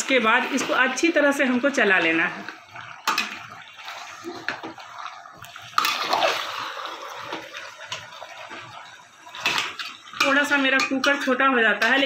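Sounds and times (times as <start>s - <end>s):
spatula scraping and knocking pot: 9.4s - 12.0s.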